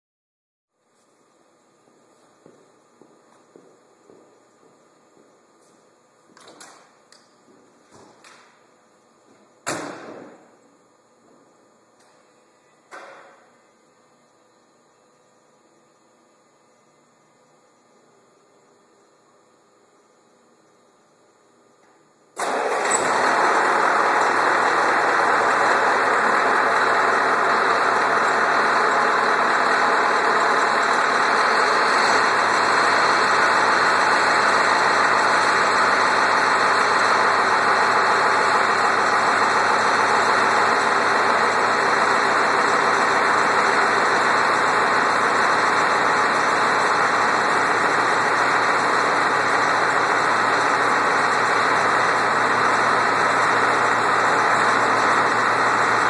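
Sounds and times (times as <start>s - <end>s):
diesel engine starting and idling: 22.3s - 56.0s.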